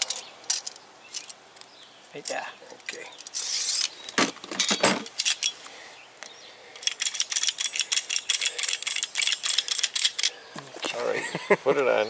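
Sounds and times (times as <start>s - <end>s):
pipe cutter ratchet clicks: 6.8s - 10.3s.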